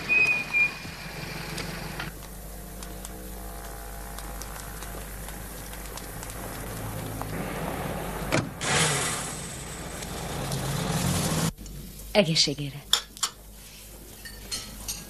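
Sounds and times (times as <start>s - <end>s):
car engine pulling away: 5.0s - 11.5s.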